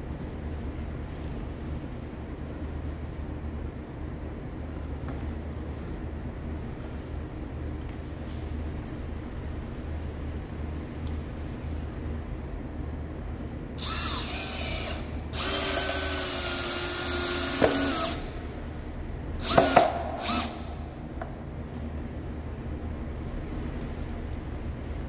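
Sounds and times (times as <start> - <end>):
cordless drill motor whining: 13.8 - 18.3, 19.4 - 20.7.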